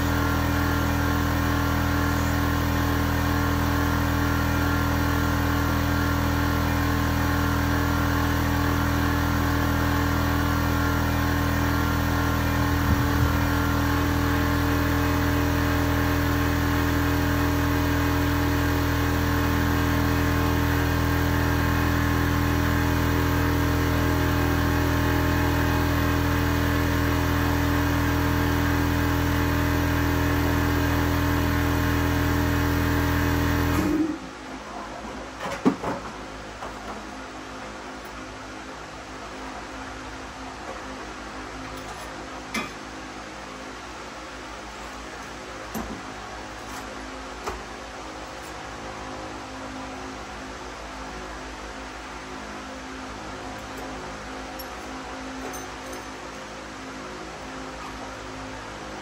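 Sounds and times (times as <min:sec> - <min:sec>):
motor running with hum: 0:00.0 - 0:35.5.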